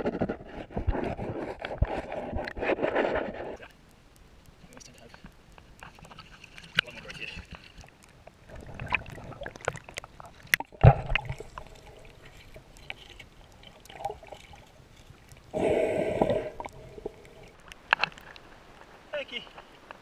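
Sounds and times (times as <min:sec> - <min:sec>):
underwater clicks and gurgling: 0:00.0 - 0:20.0
bubbling: 0:05.6 - 0:19.1
underwater thump: 0:10.5 - 0:11.7.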